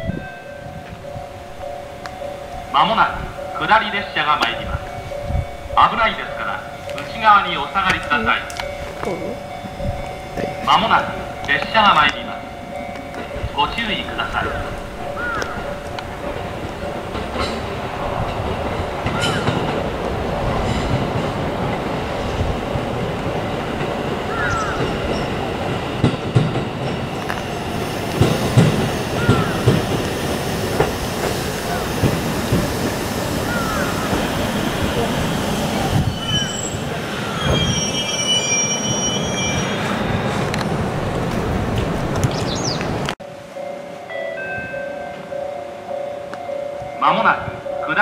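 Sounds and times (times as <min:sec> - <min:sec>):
electric train rumbling: 0:00.0 - 0:48.0
train wheels clacking: 0:01.6 - 0:43.2
train brakes squealing: 0:27.0 - 0:40.6.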